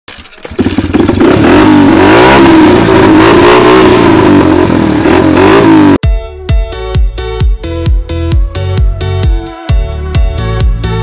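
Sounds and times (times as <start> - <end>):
engine revving: 0.5 - 6.0.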